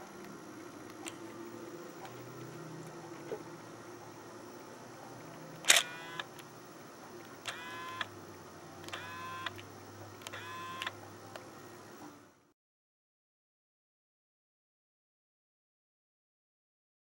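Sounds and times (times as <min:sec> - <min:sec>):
camera click: 0:05.6 - 0:06.5, 0:07.4 - 0:08.1, 0:08.8 - 0:09.6, 0:10.2 - 0:11.0
camera motor whirring: 0:05.6 - 0:06.5, 0:07.2 - 0:08.1, 0:08.8 - 0:09.6, 0:10.2 - 0:11.0.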